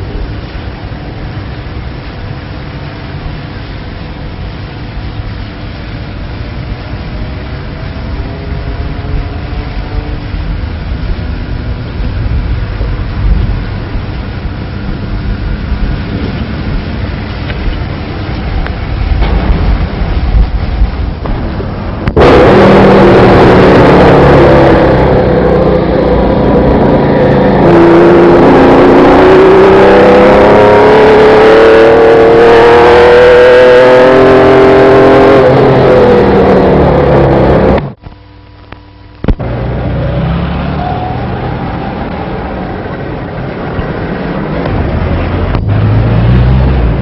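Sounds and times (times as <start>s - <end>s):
sports car engine revving: 6.9s - 38.0s, 39.3s - 47.0s.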